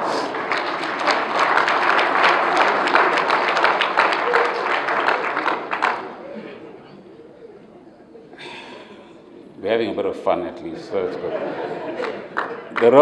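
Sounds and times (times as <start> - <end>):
audience applauding: 0.0 - 6.4, 11.9 - 13.0.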